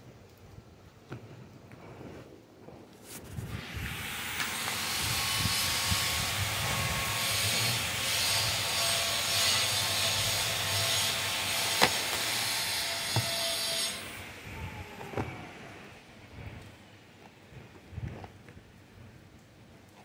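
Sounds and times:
knife scraping cardboard box: 9.2 - 13.9.

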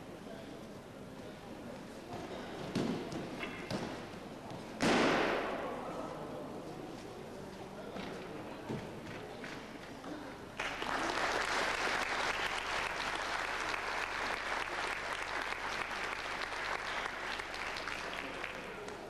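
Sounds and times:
audience applause: 10.6 - 19.0.

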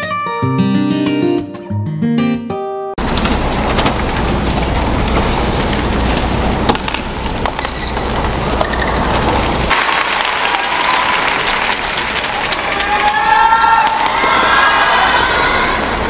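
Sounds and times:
arena crowd noise: 9.7 - 16.0.

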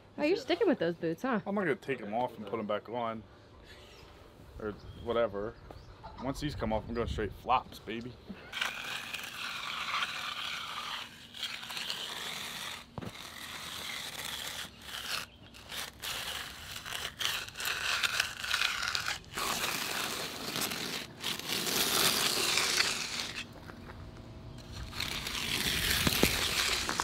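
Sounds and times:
hand edger scraping wet concrete: 8.5 - 23.6, 24.6 - 27.0.

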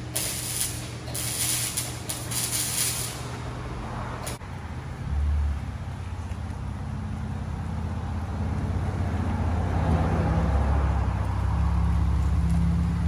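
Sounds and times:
air hissing bursts: 0.0 - 3.4.

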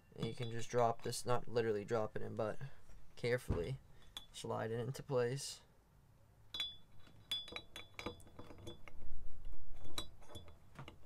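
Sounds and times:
light metallic clinks: 0.0 - 1.1, 6.5 - 8.9
dull rumble of metal part handled: 6.6 - 11.0.

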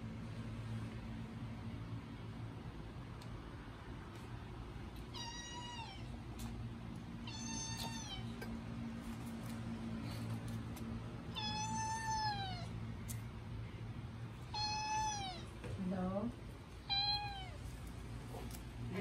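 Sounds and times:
kitten meowing: 5.1 - 6.1, 7.2 - 8.3, 11.3 - 12.7, 14.5 - 15.5, 16.9 - 17.6.

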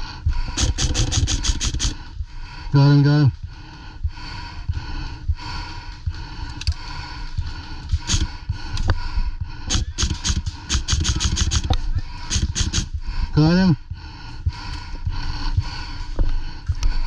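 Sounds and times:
rumble and thumping of movement: 0.0 - 17.0
airsoft guns firing: 0.6 - 2.0, 8.0 - 8.3, 9.7 - 12.9.

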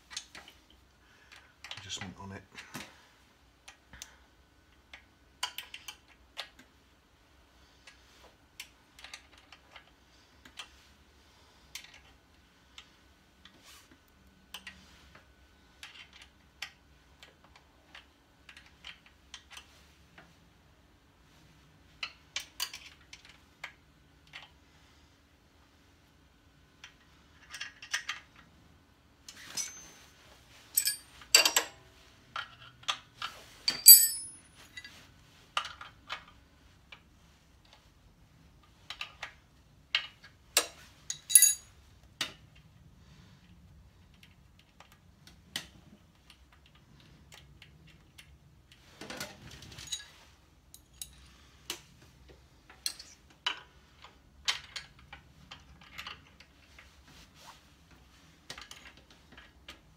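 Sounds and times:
metal clanks: 33.7 - 34.4.

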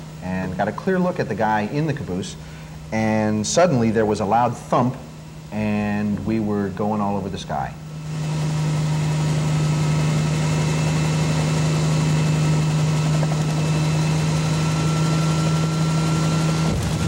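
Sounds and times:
helicopter engine and rotors: 8.1 - 17.0.

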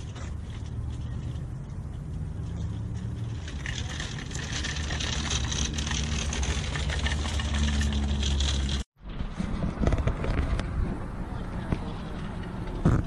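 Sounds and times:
cart rattling: 0.0 - 10.6
shopping cart rolling on asphalt: 0.0 - 11.0.

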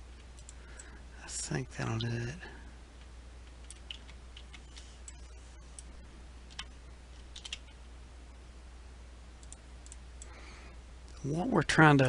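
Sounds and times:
low steady hum: 0.0 - 12.0
mouse and keyboard clicks: 7.3 - 7.8.

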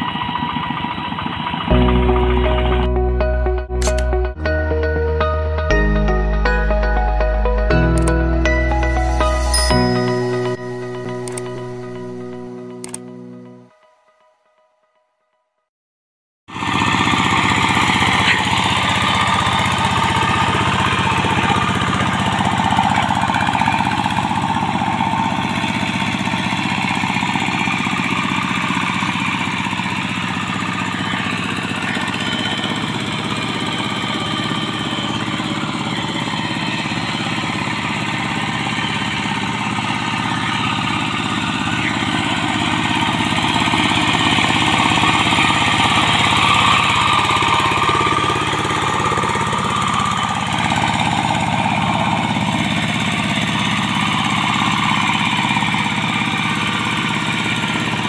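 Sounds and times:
diesel engine knocking: 0.0 - 4.3, 16.5 - 58.0.

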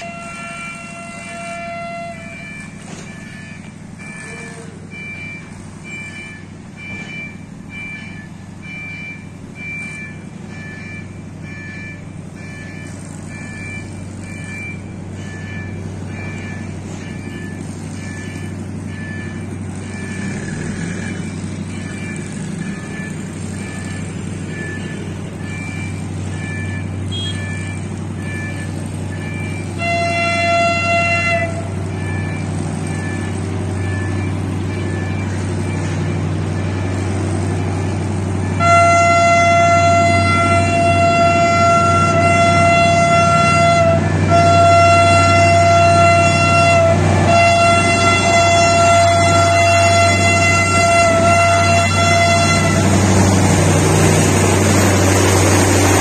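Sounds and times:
locomotive air horn blasts: 0.0 - 3.4, 26.5 - 56.0
diesel locomotive rumble: 0.0 - 56.0
level-crossing warning signal: 0.0 - 56.0.

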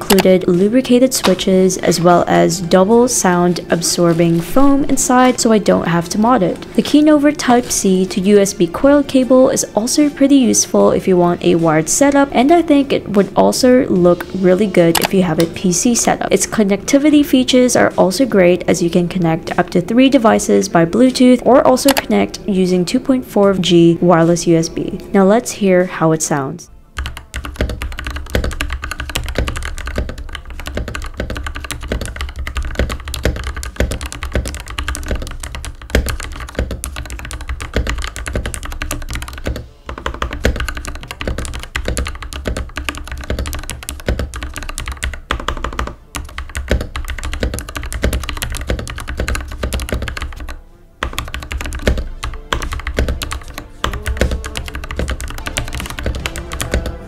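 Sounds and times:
fast typing on mechanical keyboard: 0.0 - 2.1, 14.8 - 15.5, 21.8 - 22.1, 27.0 - 57.0.

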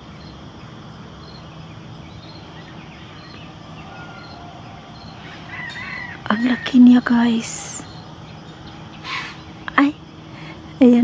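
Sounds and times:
steady background hum and hiss: 0.0 - 11.0
faint high chirp: 1.2 - 9.9.

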